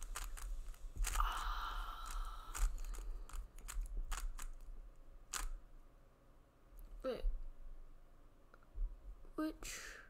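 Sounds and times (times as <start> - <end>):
puzzle cube clicking and scraping: 0.0 - 4.7, 5.3 - 5.6.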